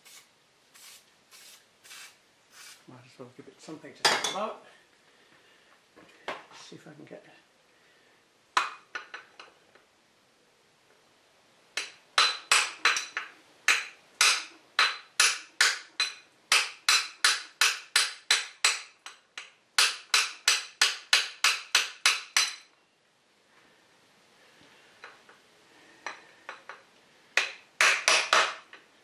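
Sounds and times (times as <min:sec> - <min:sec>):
hammer striking metal: 0:11.8 - 0:22.7.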